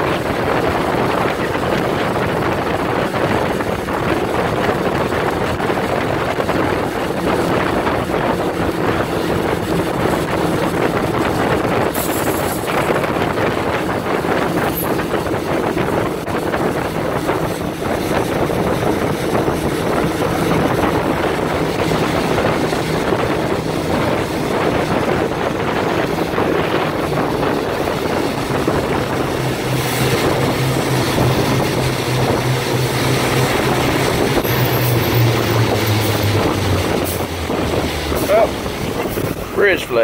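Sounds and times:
truck engine drone: 0.0 - 40.0.

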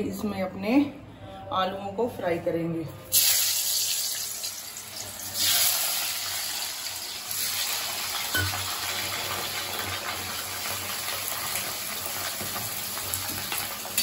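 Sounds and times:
potatoes sizzling in hot oil: 3.1 - 14.0.

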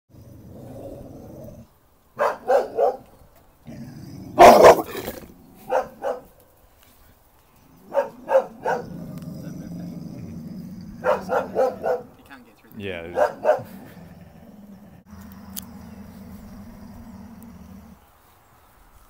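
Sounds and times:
dog barking aggressively: 2.2 - 3.1, 4.3 - 6.3, 7.8 - 12.2, 13.0 - 14.2.

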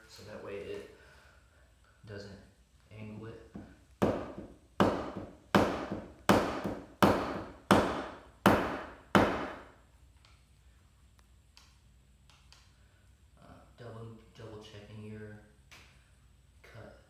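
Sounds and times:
mallet striking chisel: 3.6 - 9.6.

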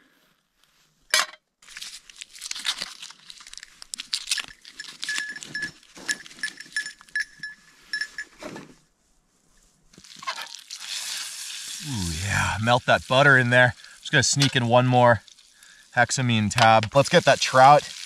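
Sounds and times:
crunching rustling and crackling: 1.6 - 8.7, 9.4 - 15.6.

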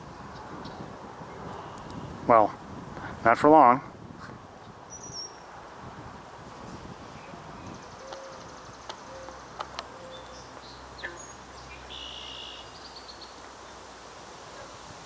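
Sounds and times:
steady background hiss: 0.0 - 15.0
faint bird chirps: 7.2 - 13.4.

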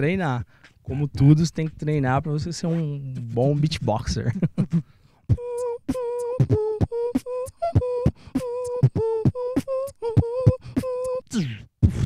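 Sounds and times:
beatboxing kick and snare: 0.0 - 12.0
held vocal tone: 2.7 - 12.0.

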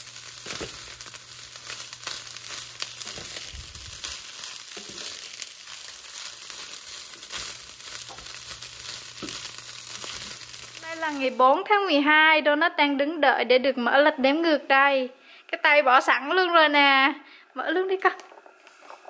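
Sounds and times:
fried rice sizzling in a pan: 0.0 - 11.7
spatula scraping a pan: 4.1 - 10.4.

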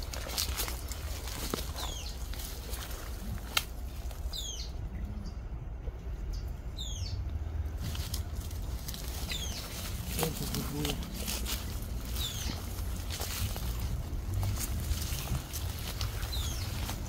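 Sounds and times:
footsteps through dry grass: 0.0 - 4.7, 7.5 - 17.0
bird chirping: 0.8 - 3.2, 4.0 - 5.6, 6.2 - 7.3, 8.4 - 13.9, 14.8 - 17.0.

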